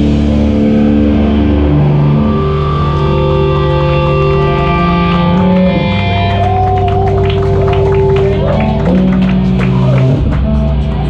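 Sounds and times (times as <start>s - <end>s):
rock band playing: 0.0s - 11.0s.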